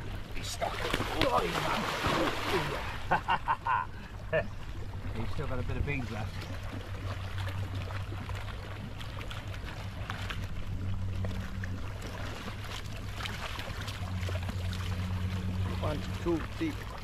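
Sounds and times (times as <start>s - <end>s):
hose outlet churning water: 0.0s - 3.0s
steady low hum: 0.0s - 17.0s
water splashing and churning: 0.0s - 17.0s
fish thrashing in water: 0.4s - 3.1s.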